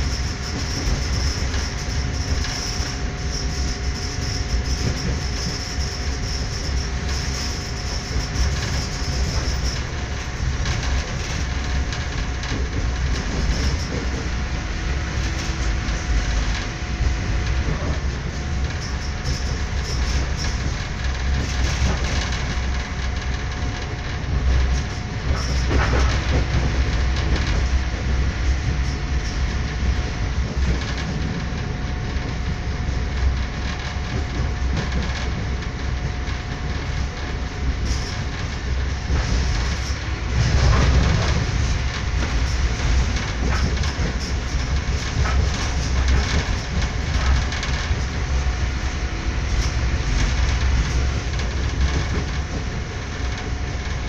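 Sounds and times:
train low rumble: 0.0 - 54.0
wheels clattering over rails: 0.0 - 54.0.

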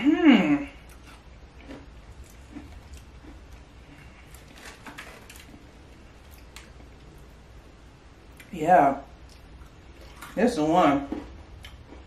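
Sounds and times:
person chewing crunchy cookie: 0.7 - 7.0, 11.1 - 12.0.

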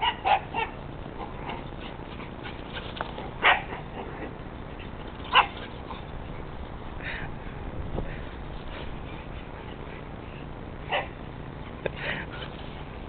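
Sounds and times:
dog barking: 0.0 - 0.8, 3.4 - 4.0, 5.3 - 5.6, 10.9 - 11.2.

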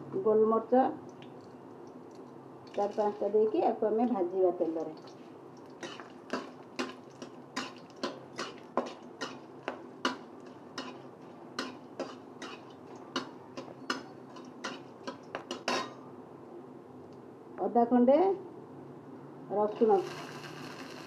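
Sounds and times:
spices frying in oil: 1.0 - 16.0, 19.7 - 21.0
metal spatula scraping pan: 5.8 - 16.0.

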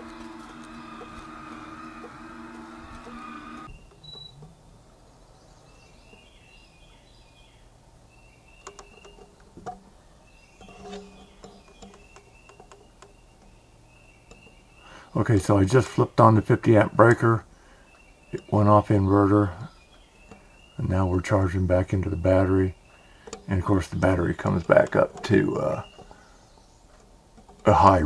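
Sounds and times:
faint high chirps: 0.0 - 4.5
window-shade motor humming: 0.0 - 4.5.

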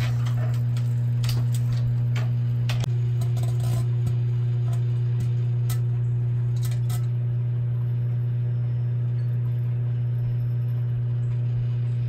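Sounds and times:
microwave oven humming: 0.0 - 12.0.

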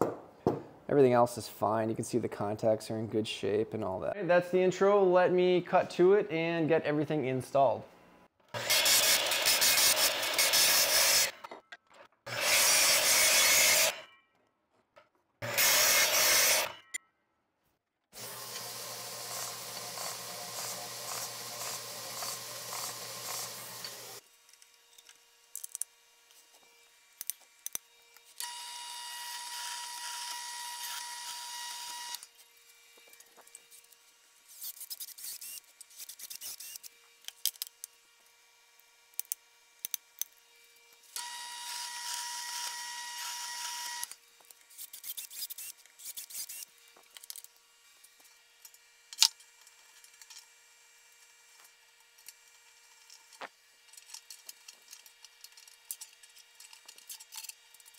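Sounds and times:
belt sander grinding metal: 8.6 - 11.4, 12.3 - 14.1, 15.4 - 16.9, 18.2 - 24.2
drill boring into metal: 8.6 - 11.4, 12.3 - 14.0, 15.4 - 16.8, 18.2 - 24.2, 28.4 - 32.2, 41.2 - 44.2.

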